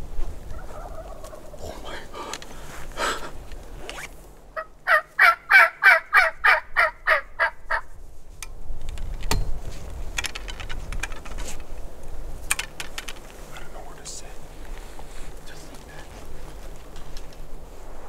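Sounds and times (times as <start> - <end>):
turkey calling: 0.5 - 2.3, 4.5 - 8.0.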